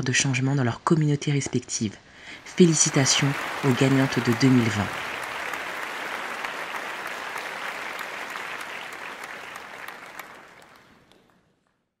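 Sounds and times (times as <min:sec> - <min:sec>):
applause: 0:02.4 - 0:11.9.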